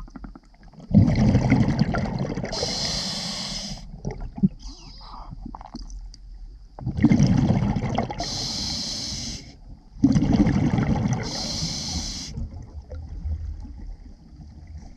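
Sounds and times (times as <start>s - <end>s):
bubbling exhaled air underwater: 0.0s - 5.9s, 6.8s - 9.4s, 10.0s - 14.9s
regulator hiss: 2.6s - 3.8s, 8.2s - 9.6s, 11.2s - 12.4s.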